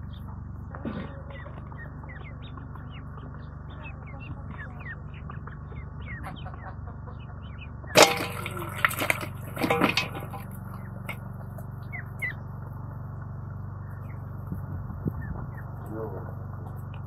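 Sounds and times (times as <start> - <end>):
steady low hum: 0.0 - 17.0
vegetables dropped into steel bowl: 8.0 - 10.5
metallic clang: 8.0 - 11.2.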